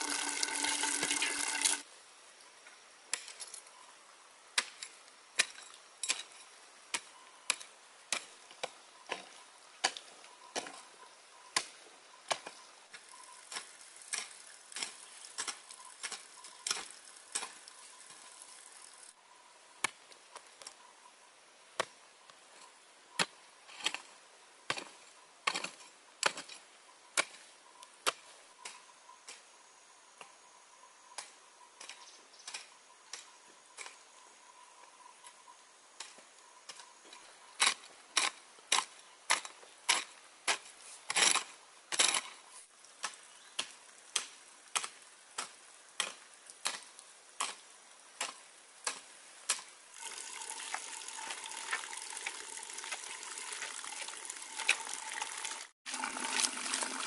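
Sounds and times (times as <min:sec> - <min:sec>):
running water: 0:00.0 - 0:01.9, 0:49.9 - 0:57.0.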